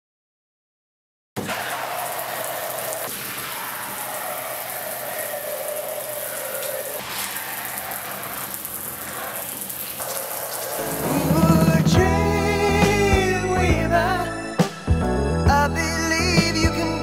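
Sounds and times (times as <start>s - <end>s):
sink sprayer spraying water: 1.4s - 12.1s
music: 10.8s - 17.0s.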